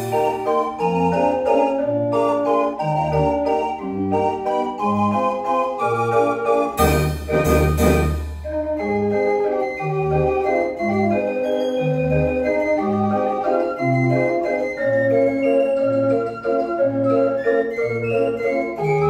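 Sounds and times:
street organ playing a tune: 0.0 - 19.0
drum and cymbal crash: 6.8 - 8.5.

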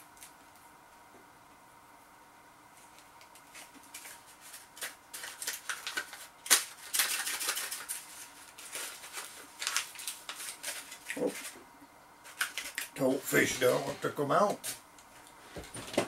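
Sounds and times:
paper cone rustling and crinkling: 2.7 - 11.6, 12.2 - 14.8.

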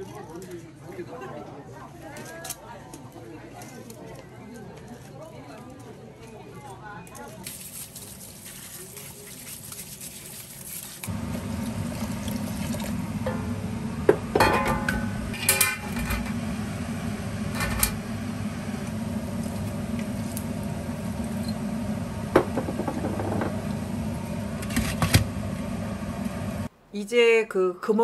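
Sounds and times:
steady low hum: 11.1 - 26.7
steamer pot knocking and clinking: 13.2 - 16.0, 22.4 - 23.6.

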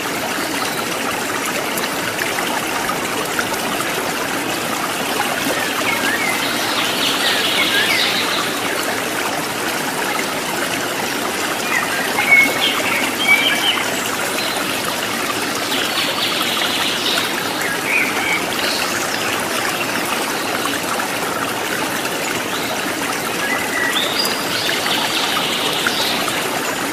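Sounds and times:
stream babbling: 0.0 - 26.9
birds chirping: 5.5 - 8.8, 11.6 - 14.9.

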